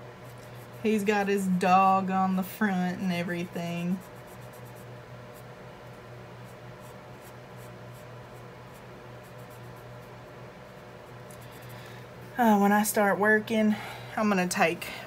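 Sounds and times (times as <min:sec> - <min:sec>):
steady low hum: 0:00.0 - 0:15.0
marker scratching on paper: 0:03.9 - 0:11.6.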